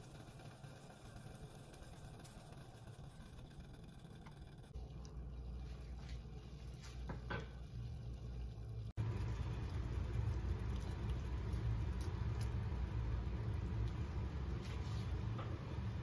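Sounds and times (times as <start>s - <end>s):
liquid boiling in a saucepan: 0.0s - 16.0s.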